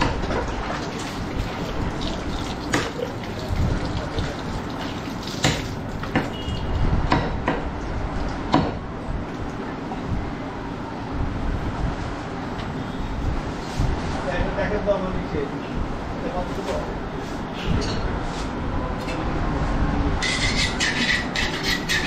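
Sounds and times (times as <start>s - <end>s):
steady background noise: 0.0s - 22.0s
water splashing: 0.3s - 6.4s
sharp knocks: 5.4s - 6.4s, 7.1s - 7.7s, 8.5s - 8.8s.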